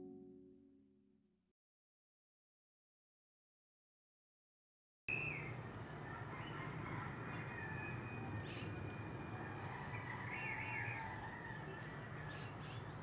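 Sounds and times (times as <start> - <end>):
insects calling: 5.1 - 13.0.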